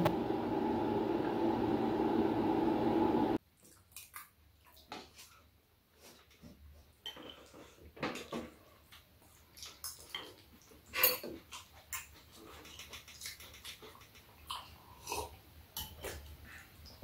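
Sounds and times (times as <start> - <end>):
chewing and mouth sounds: 8.9 - 16.6.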